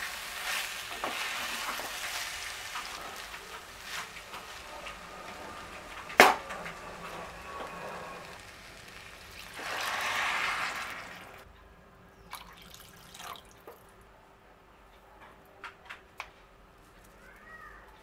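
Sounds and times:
water pouring into a pot: 0:00.0 - 0:11.4, 0:12.3 - 0:13.6.

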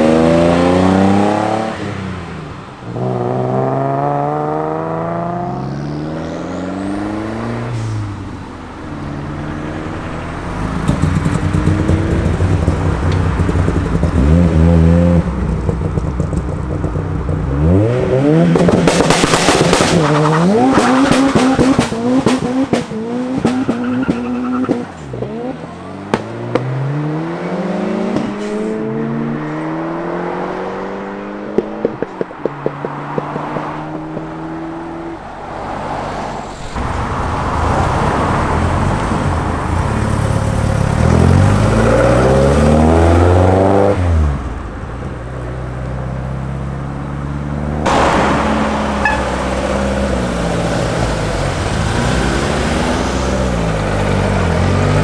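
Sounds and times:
car engine accelerating hard: 0:00.0 - 0:08.3, 0:08.9 - 0:55.0
another car engine: 0:00.0 - 0:55.0
harsh exhaust crackling: 0:06.7 - 0:28.7
sharp exhaust pops: 0:18.5 - 0:25.3.

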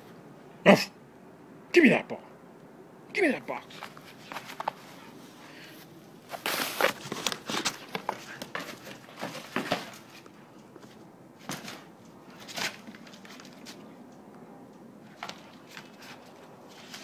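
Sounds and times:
dog playing with toy: 0:03.6 - 0:05.6, 0:06.2 - 0:10.4
crinkling: 0:03.7 - 0:13.8.

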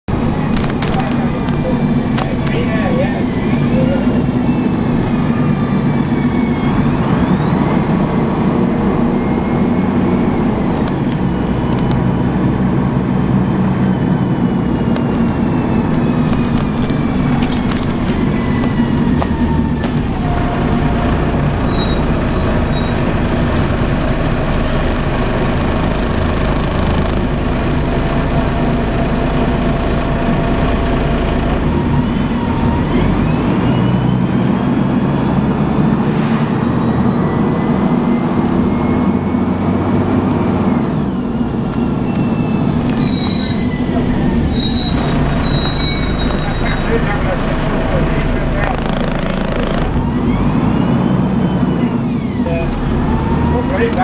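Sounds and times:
bus engine drone: 0:00.0 - 0:54.0
gearbox whine: 0:40.6 - 0:54.0.

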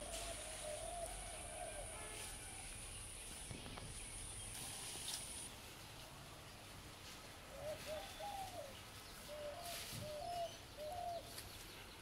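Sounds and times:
dove cooing: 0:00.0 - 0:02.0, 0:07.5 - 0:11.4.

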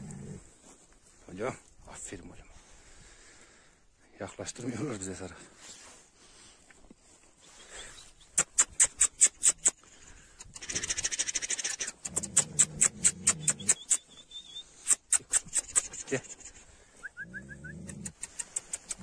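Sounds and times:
low animal call: 0:16.2 - 0:19.0.

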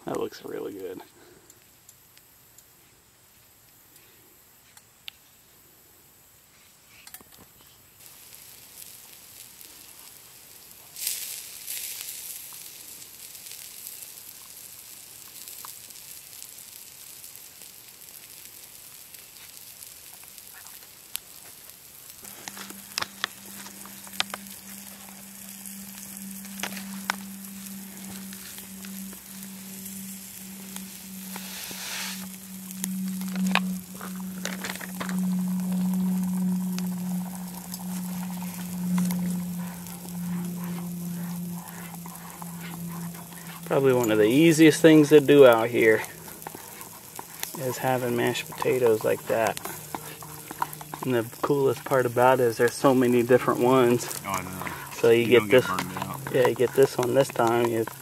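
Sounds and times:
crackling pops: 0:07.4 - 0:58.0
steaks sizzling on a grill: 0:08.0 - 0:58.0
low hum: 0:22.0 - 0:58.0.

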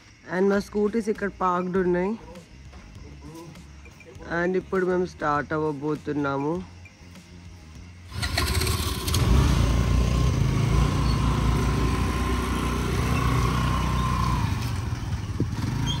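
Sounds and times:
scooter engines running: 0:08.1 - 0:16.0.

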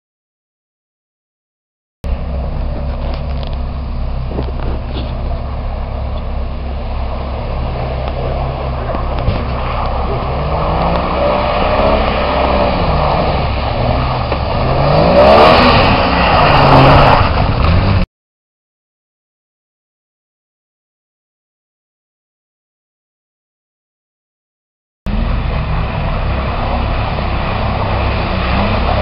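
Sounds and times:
suv engine revving in mud: 0:02.1 - 0:18.1, 0:25.1 - 0:29.0.

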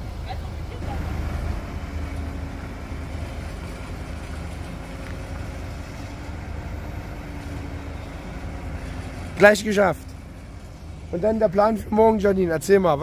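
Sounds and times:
diesel crane engine running: 0:00.0 - 0:13.0
faint even whine: 0:00.7 - 0:09.3.

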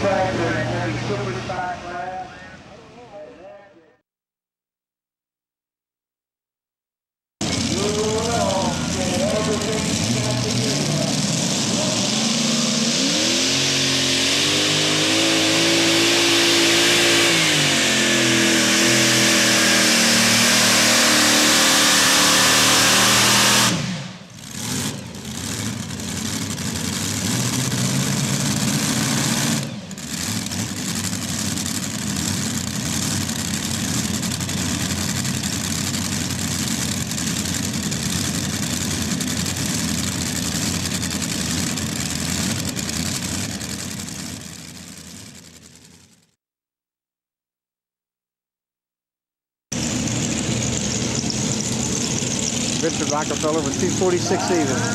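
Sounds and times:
tractor engines at full throttle: 0:00.0 - 0:03.4, 0:07.4 - 0:46.4, 0:49.7 - 0:54.9
steady lower engine noise: 0:00.0 - 0:03.9, 0:49.8 - 0:54.9.

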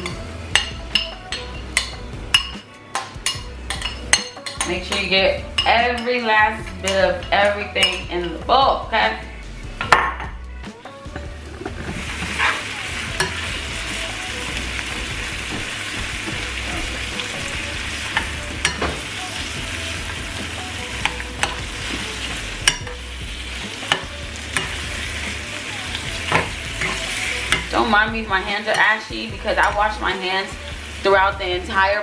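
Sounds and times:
shrimp sizzling in a frying pan: 0:11.8 - 0:32.0
metal spoon clicking on pan: 0:23.9 - 0:24.8.

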